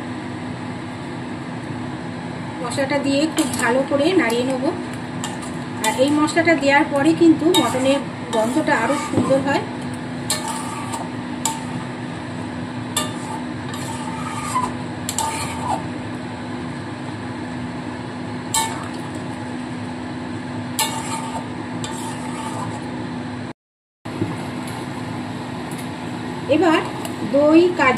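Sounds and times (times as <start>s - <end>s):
steady hum: 0.0s - 23.5s, 24.1s - 27.9s
metal spatula scraping through gravy: 3.4s - 4.5s, 5.2s - 12.1s, 12.9s - 15.9s, 18.6s - 19.2s, 20.8s - 22.9s.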